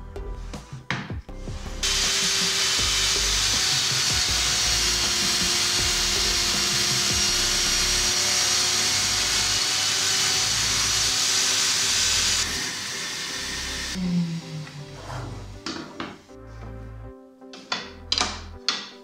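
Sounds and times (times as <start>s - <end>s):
saw blade spinning freely: 1.8s - 14.0s
table saw cutting wood: 1.8s - 16.2s.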